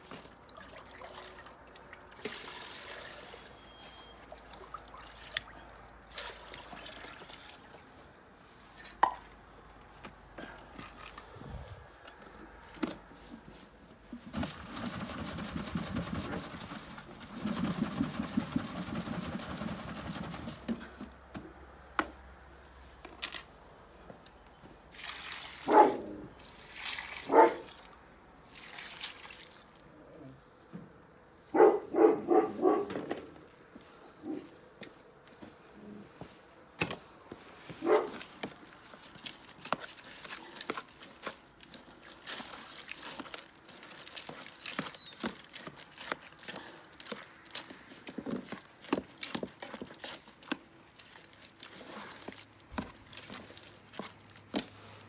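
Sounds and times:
liquid pouring and splashing: 0.0s - 3.6s, 4.3s - 8.4s, 24.9s - 29.9s, 38.6s - 54.9s
dog barking: 25.6s - 26.1s, 27.3s - 27.7s, 31.5s - 32.9s, 37.8s - 38.2s.

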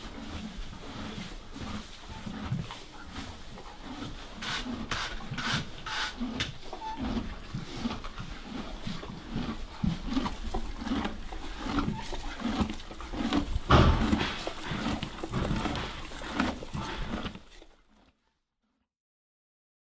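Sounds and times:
brush strokes over horse coat: 0.0s - 6.4s
horse munching feed: 0.0s - 18.2s
loud knock: 13.7s - 14.4s.

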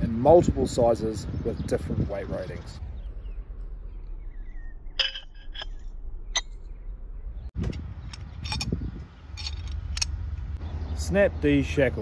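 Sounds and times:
wind on microphone: 0.0s - 3.4s, 7.4s - 10.0s
metal shackles clinking: 5.0s - 5.8s, 7.7s - 10.2s.

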